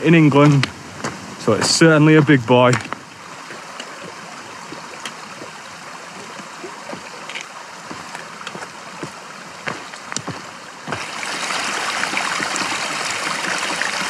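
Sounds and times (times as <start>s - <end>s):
footsteps on stony path: 0.0s - 11.2s
stream rushing: 0.0s - 14.0s
trekking poles tapping on stones: 0.4s - 5.5s.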